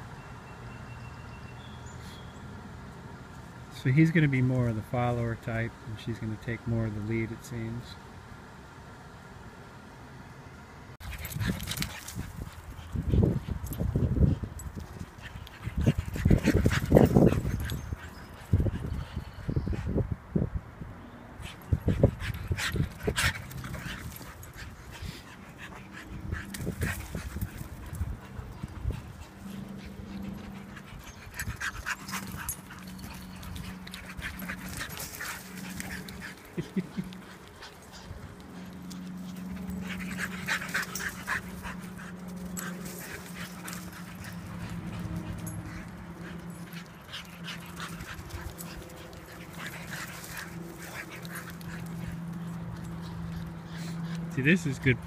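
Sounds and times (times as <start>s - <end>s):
dogs running and playing: 10.9s - 55.0s
dog panting: 11.0s - 19.9s, 21.4s - 54.4s.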